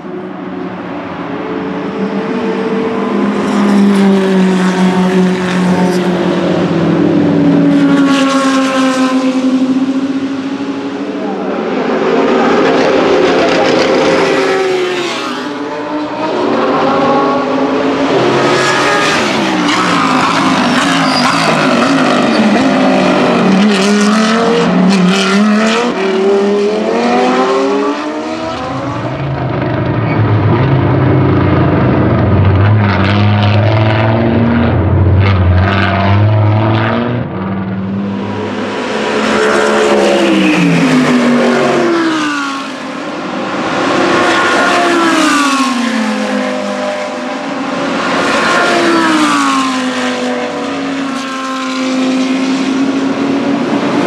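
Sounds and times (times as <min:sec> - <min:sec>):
race car engines passing: 0:00.0 - 0:54.0
deep rough engine drone: 0:28.5 - 0:39.2.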